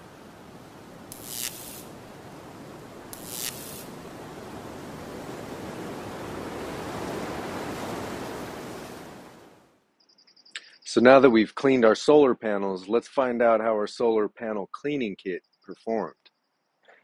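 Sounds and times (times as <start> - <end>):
water spraying: 1.0 - 2.0, 3.1 - 4.1
short sharp sprays: 1.1 - 1.9, 3.1 - 3.9.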